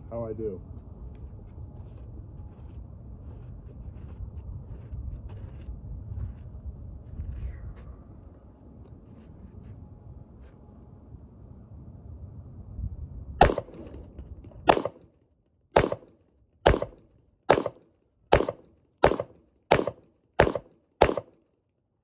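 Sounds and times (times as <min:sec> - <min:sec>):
pistol shots: 0:13.4 - 0:15.1, 0:15.8 - 0:21.4.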